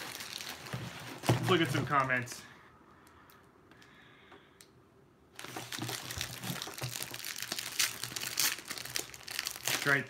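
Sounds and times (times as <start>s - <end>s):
plastic packaging crinkling: 0.0s - 2.2s, 5.4s - 10.0s.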